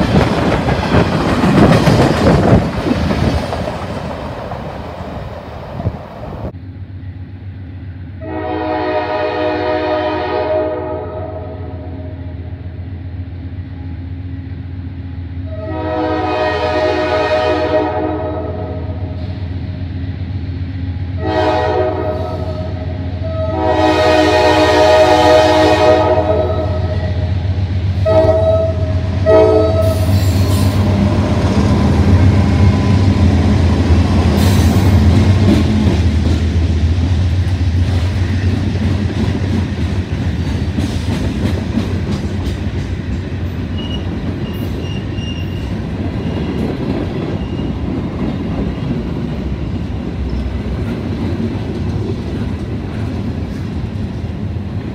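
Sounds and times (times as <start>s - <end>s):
train wheels clacking: 0.0s - 5.0s, 29.2s - 54.5s
locomotive air horn blasts: 8.2s - 11.9s, 15.5s - 19.3s, 21.2s - 27.3s, 28.0s - 31.0s.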